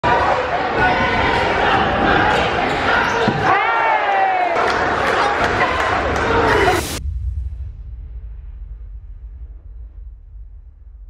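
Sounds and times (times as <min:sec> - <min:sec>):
deep low rumble: 0:06.5 - 0:11.0.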